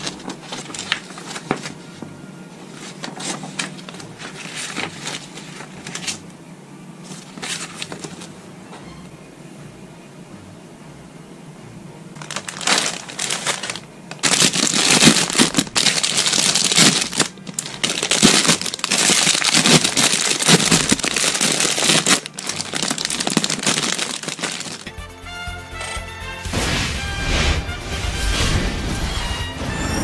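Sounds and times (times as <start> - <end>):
plastic bag crinkling: 0.0 - 1.9, 2.6 - 6.2, 12.2 - 24.9.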